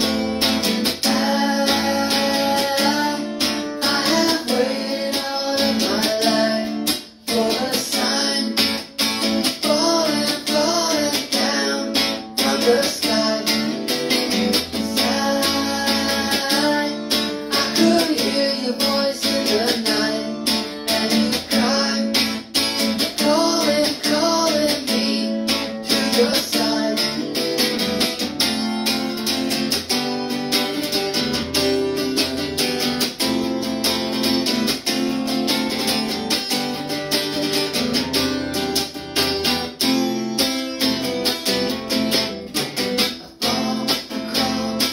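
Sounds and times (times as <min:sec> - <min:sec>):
man singing: 0:00.0 - 0:28.3, 0:41.5 - 0:44.9
guitar strumming chords: 0:00.0 - 0:44.9.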